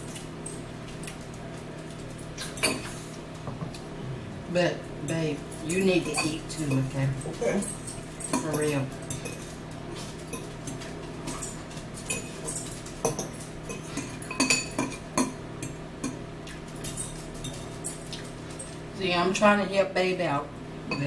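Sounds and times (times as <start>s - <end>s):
steady low hum: 0.0s - 21.0s
forks clinking against bowls: 1.9s - 3.2s, 5.0s - 18.8s.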